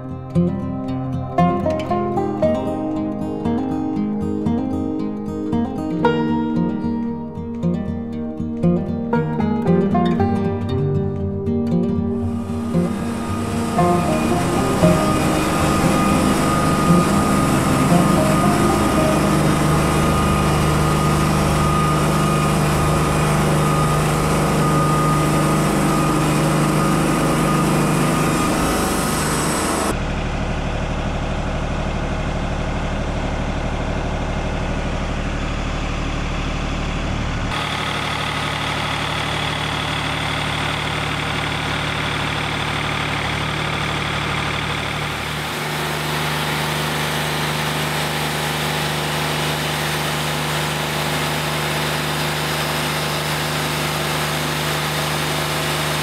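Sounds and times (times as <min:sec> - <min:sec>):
band sawmill cutting log: 0:12.4 - 0:29.9, 0:37.5 - 0:56.0.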